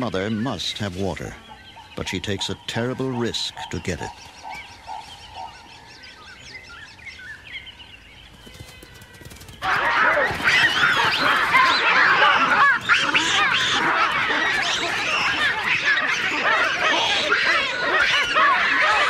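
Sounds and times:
faint bird calls: 0.0s - 19.0s
baboons screaming: 8.4s - 19.0s.

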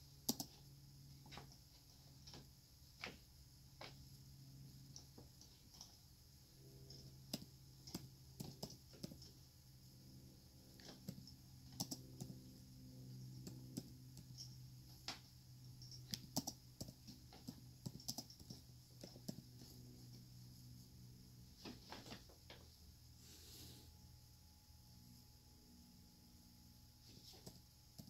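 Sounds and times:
faint room hum: 0.0s - 28.0s
soft irregular clicks and taps: 0.2s - 4.2s, 6.8s - 9.4s, 10.7s - 12.6s, 13.2s - 20.3s.

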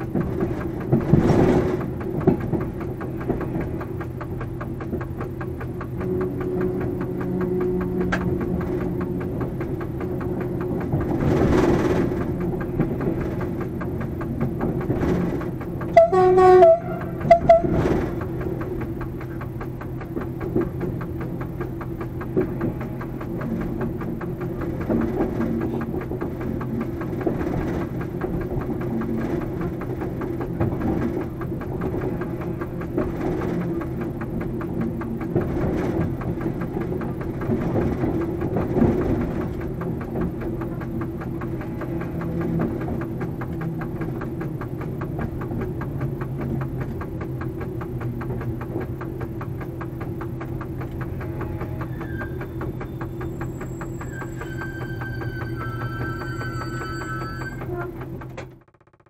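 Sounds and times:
locomotive diesel engine running: 0.0s - 59.0s
wheels clicking over rail joints: 0.0s - 59.0s
locomotive horn pulses: 5.9s - 9.6s, 15.9s - 18.2s, 22.2s - 23.6s, 41.2s - 42.8s, 50.9s - 58.4s.

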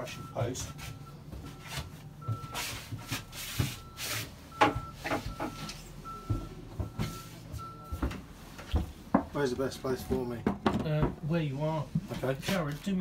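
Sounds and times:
high beep: 0.0s - 8.0s
wooden floorboards knocking: 10.0s - 11.3s.

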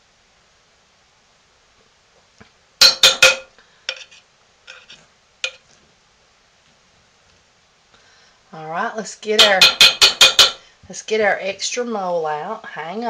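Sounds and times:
metal spoon knocking on crock: 2.8s - 4.0s, 9.4s - 10.6s.

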